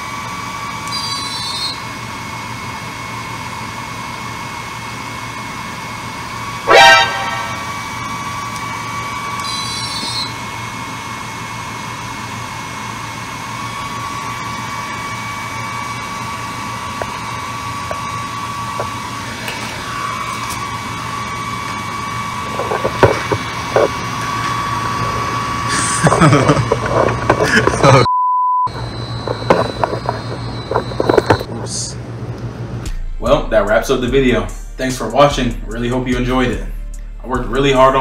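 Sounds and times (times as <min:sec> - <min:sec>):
laser whirring hum with whine: 0:00.0 - 0:28.1, 0:28.7 - 0:36.6
loud rising tone: 0:06.3 - 0:08.3.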